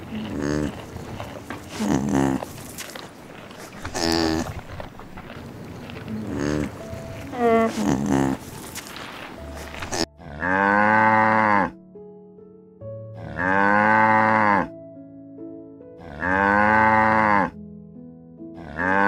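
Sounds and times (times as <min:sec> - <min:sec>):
cow mooing: 0:00.0 - 0:00.8, 0:03.8 - 0:04.6, 0:06.1 - 0:08.5, 0:09.9 - 0:11.8, 0:13.2 - 0:14.7, 0:16.0 - 0:17.6, 0:18.6 - 0:19.0
soft background music: 0:04.0 - 0:19.0.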